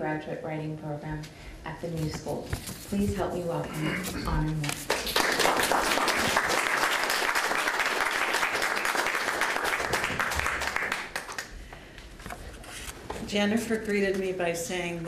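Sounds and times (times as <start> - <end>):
audience applause: 4.9 - 11.5.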